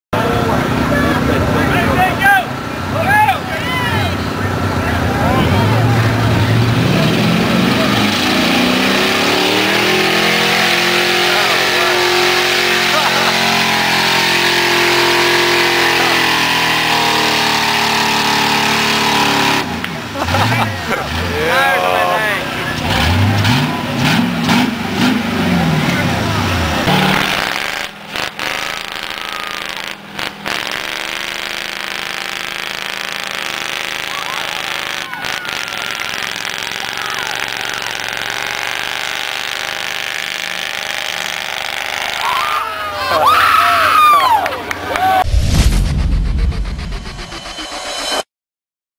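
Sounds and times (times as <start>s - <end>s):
truck engine running under load: 0.2s - 42.2s
wheels spinning in mud: 26.9s - 43.2s.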